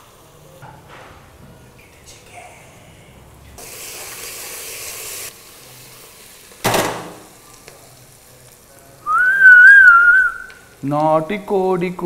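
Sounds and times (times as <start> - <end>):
onions sizzling in oil: 3.6 - 12.0
person whistling: 9.1 - 10.5.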